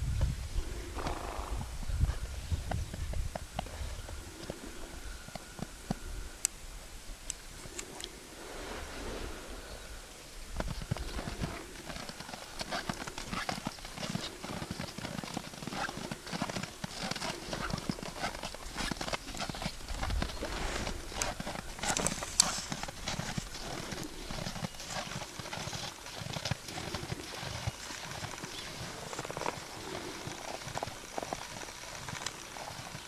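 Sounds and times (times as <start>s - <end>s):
hooves crunching on snow: 10.5s - 33.0s.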